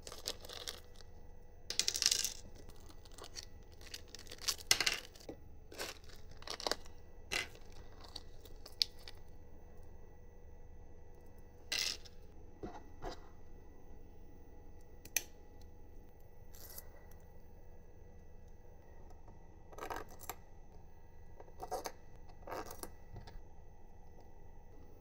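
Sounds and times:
small metal parts clinking: 0.0s - 1.1s, 1.7s - 9.2s
faint steady hum: 0.0s - 25.0s.

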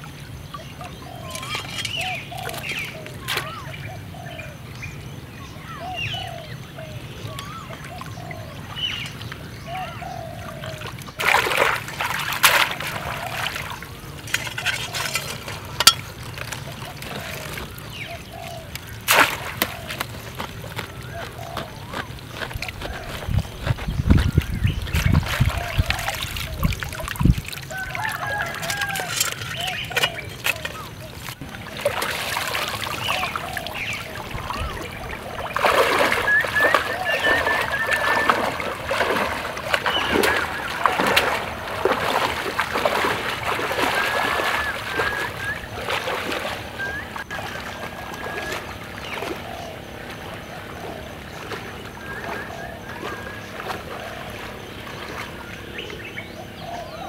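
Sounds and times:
hands splashing in muddy water: 10.6s - 56.1s.

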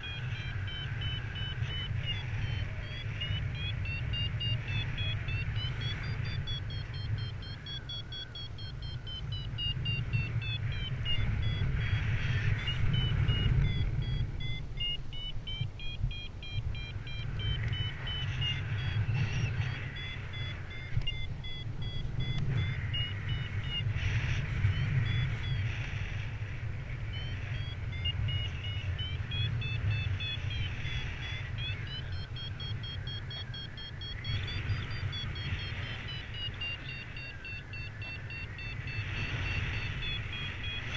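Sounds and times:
variometer beeping tone: 0.0s - 40.9s
wind rushing on microphone: 0.0s - 40.9s.

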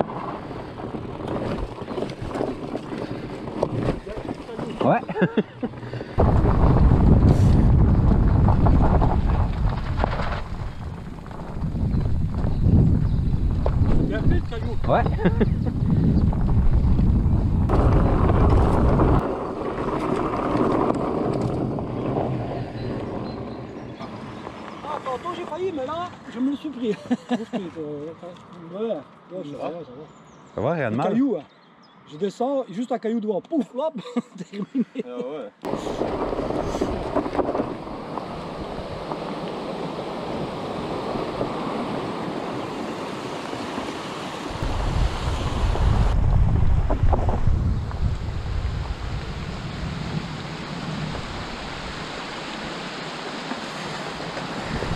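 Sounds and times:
wind buffeting microphone: 0.0s - 25.5s, 35.7s - 53.0s, 53.8s - 54.9s
bike tyres rolling on dirt: 0.0s - 26.9s, 35.7s - 54.9s.

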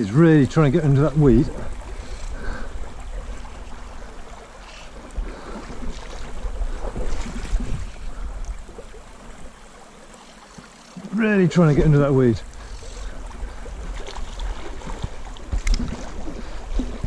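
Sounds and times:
wind on microphone: 5.0s - 8.8s.

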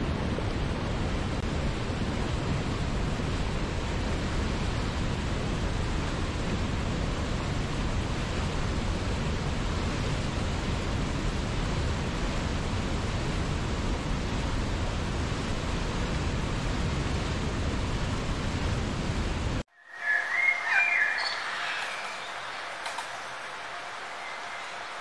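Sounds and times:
river rushing over rapids: 19.8s - 25.0s.

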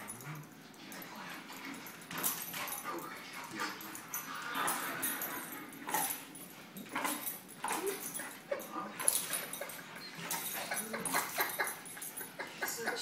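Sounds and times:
dog whimpering: 7.7s - 13.0s.

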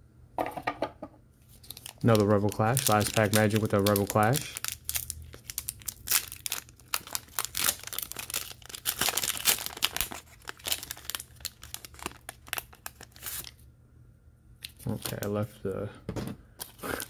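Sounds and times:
foil wrapper crinkling and tearing: 1.4s - 13.6s, 14.6s - 15.3s, 16.6s - 17.0s.

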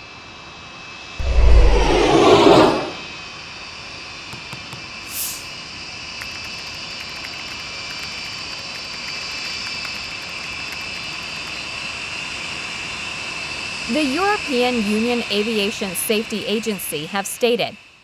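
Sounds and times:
jet engine noise: 1.2s - 17.6s
brief high hiss: 5.0s - 5.6s.

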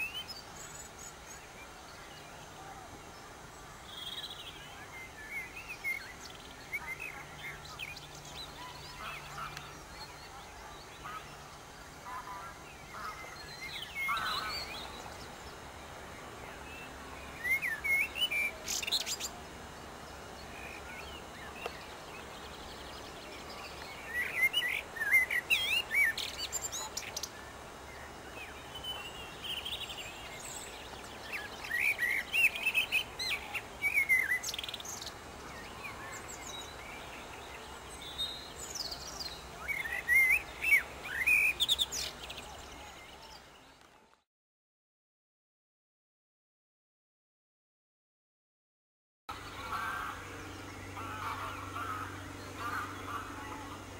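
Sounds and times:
blackbird singing: 0.0s - 3.2s, 3.8s - 19.4s, 20.4s - 43.8s.

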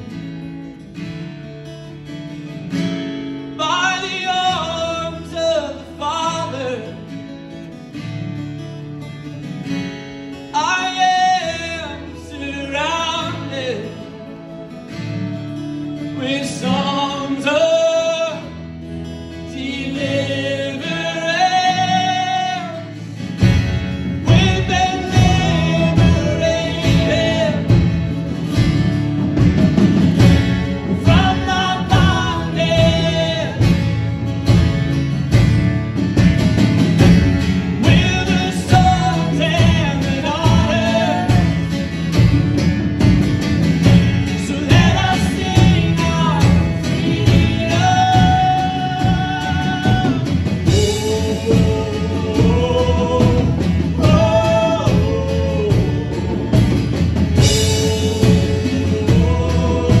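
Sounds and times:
drums: 0.0s - 60.0s
keyboard: 0.0s - 60.0s
strummed acoustic guitar: 0.0s - 60.0s
man singing: 3.5s - 7.3s, 10.4s - 14.7s, 15.4s - 28.6s, 30.6s - 34.3s, 37.6s - 42.3s, 43.8s - 60.0s
women singing: 24.2s - 27.9s, 37.8s - 41.7s, 44.4s - 60.0s.

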